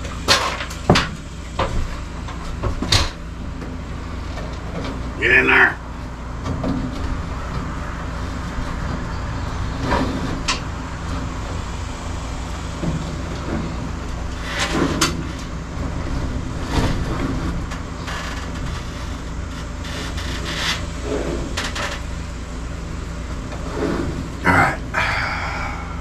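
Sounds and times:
low mechanical hum: 0:00.0 - 0:26.0
cable rustling and scraping on wood: 0:12.5 - 0:22.2.

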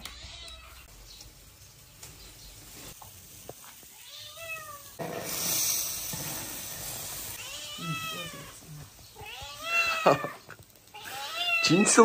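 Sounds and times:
wok hissing and sizzling: 0:00.0 - 0:12.0
cat meowing: 0:03.9 - 0:05.0, 0:07.3 - 0:12.0.

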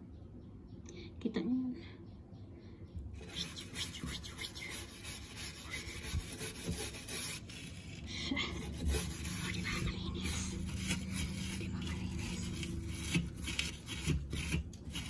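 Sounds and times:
brush scrubbing window frame: 0:03.2 - 0:15.0.

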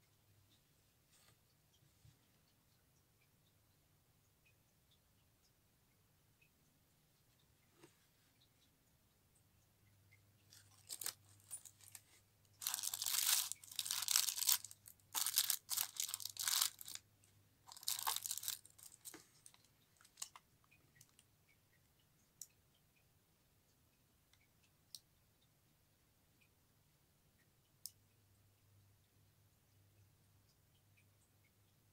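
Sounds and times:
tissue paper crinkling: 0:10.5 - 0:17.0, 0:17.7 - 0:20.3.

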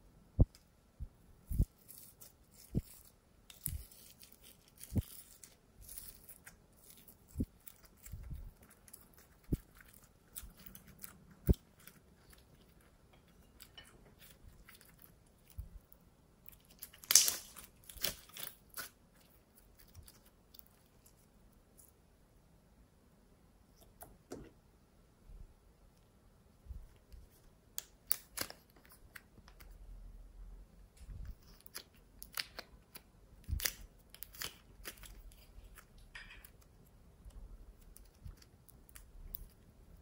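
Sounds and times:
slime squishing and popping: 0:16.5 - 0:19.0.

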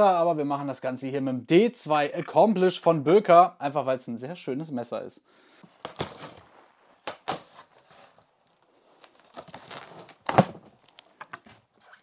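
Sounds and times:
cardboard scraping and rustling: 0:05.8 - 0:06.8
cardboard flap tearing: 0:05.8 - 0:12.0.

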